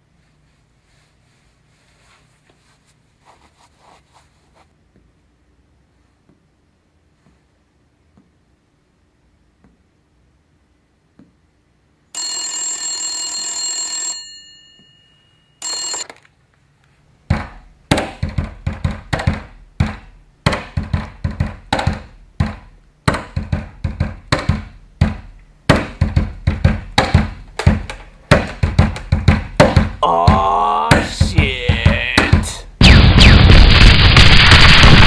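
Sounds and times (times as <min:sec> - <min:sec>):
telephone ringing: 0:12.2 - 0:16.3.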